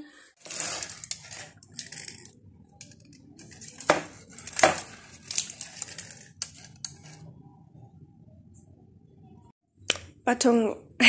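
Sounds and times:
aluminium foil crinkling: 0:00.4 - 0:07.3.

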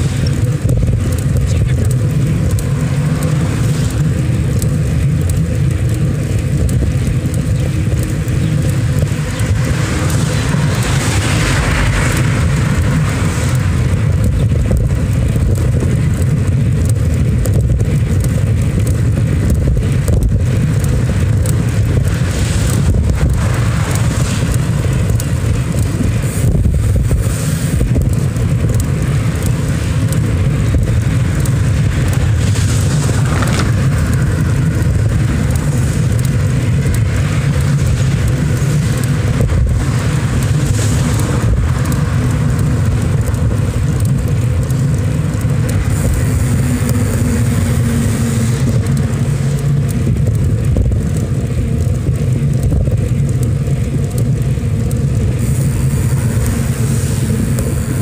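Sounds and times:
road and traffic noise: 0:00.0 - 0:58.0
wind buffeting microphone: 0:00.0 - 0:58.0.

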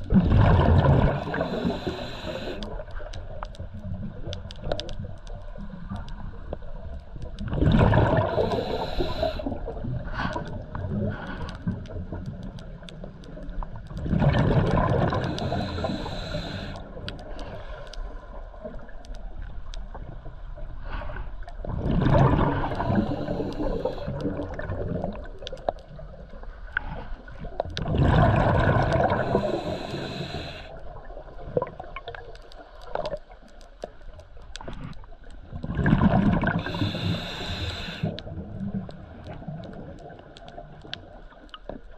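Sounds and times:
exhaled bubbles from regulator: 0:00.0 - 0:02.7, 0:07.4 - 0:11.0, 0:14.0 - 0:16.6, 0:21.7 - 0:25.4, 0:27.8 - 0:30.5, 0:35.6 - 0:38.5.

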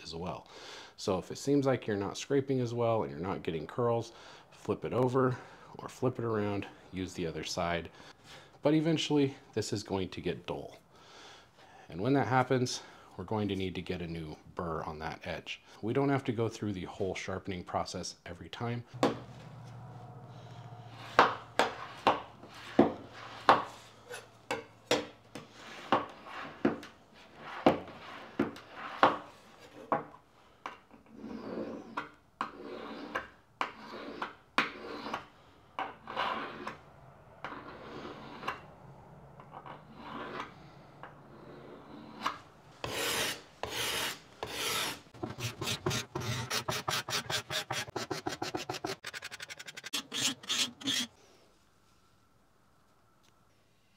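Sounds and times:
card scraper scraping wood: 0:21.0 - 0:24.3, 0:42.8 - 0:51.1.

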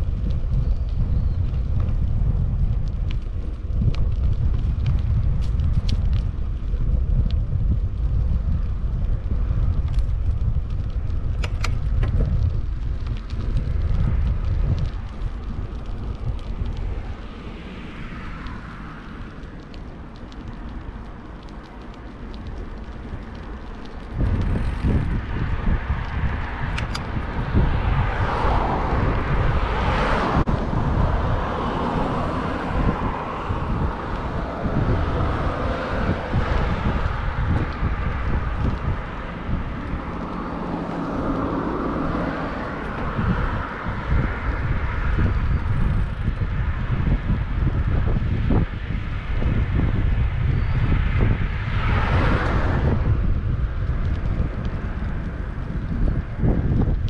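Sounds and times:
bicycle tyre and road noise: 0:00.0 - 0:57.0
wind buffeting microphone: 0:00.0 - 0:57.0
sharp clicks: 0:11.3 - 0:12.3.

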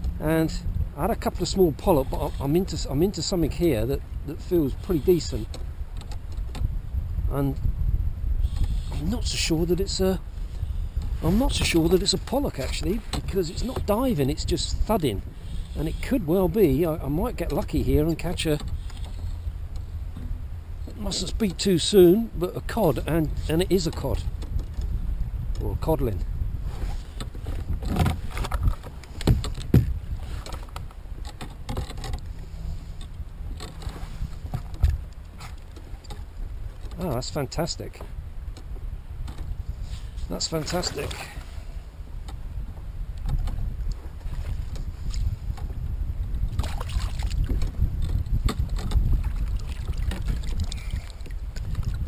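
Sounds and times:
low wind: 0:00.0 - 0:52.0
water noise: 0:00.0 - 0:52.0
hollow knocks on plastic kayak: 0:29.2 - 0:30.0.

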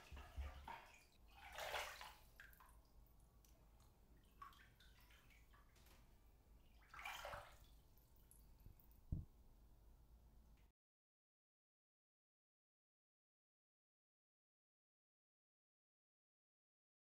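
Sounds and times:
water drips: 0:00.0 - 0:09.3
water splashing in bathtub: 0:00.0 - 0:09.3.

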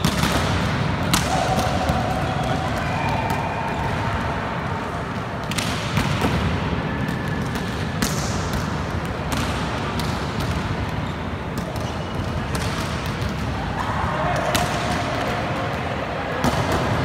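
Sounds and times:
hands slapping volleyball: 0:00.0 - 0:03.8, 0:05.4 - 0:11.0
background din in large hall: 0:00.0 - 0:17.0.

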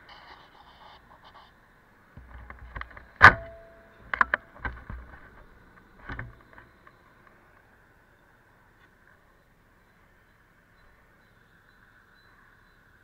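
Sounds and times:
faint steady hiss: 0:00.0 - 0:13.0
sharp knocks and clicks: 0:02.2 - 0:07.4.

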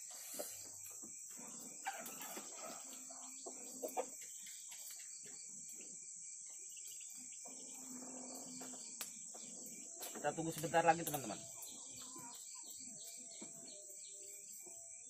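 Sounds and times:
crickets chirring: 0:00.0 - 0:15.0
fire snapping: 0:10.0 - 0:11.4.

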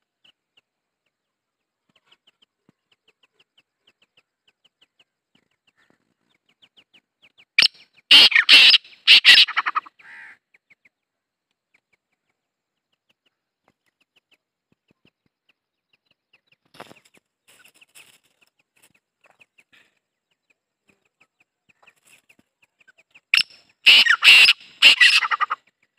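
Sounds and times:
faint ticks and chirps: 0:00.0 - 0:08.1, 0:10.0 - 0:23.8
bird calling rough notes: 0:07.6 - 0:10.4, 0:23.4 - 0:25.6.

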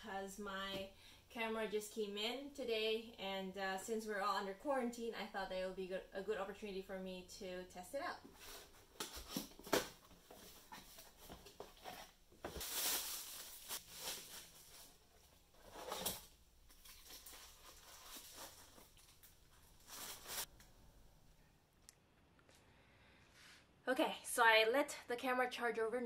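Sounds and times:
packaging crinkling and rustling: 0:08.4 - 0:20.5.

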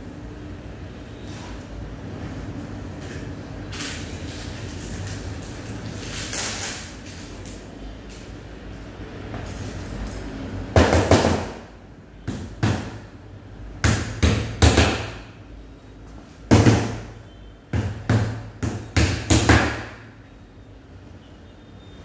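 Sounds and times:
hammer striking nails: 0:10.8 - 0:11.6, 0:13.8 - 0:15.2, 0:17.8 - 0:20.0.

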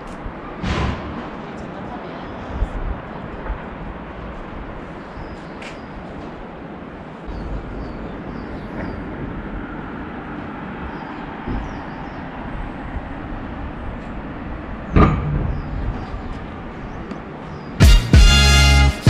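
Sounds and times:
outdoor rumble and hiss: 0:00.0 - 0:17.8
sharp knock: 0:00.6 - 0:01.4.

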